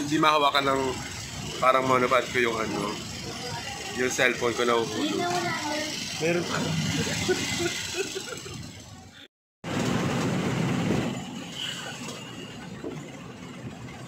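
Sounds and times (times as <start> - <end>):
vehicle rumble and rattle: 0.0 - 14.0.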